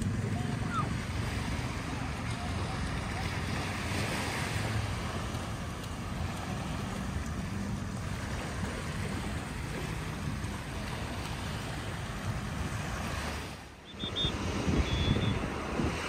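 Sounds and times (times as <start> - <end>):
small waves washing on shore: 0.0 - 16.0
wind noise on microphone: 11.8 - 16.0.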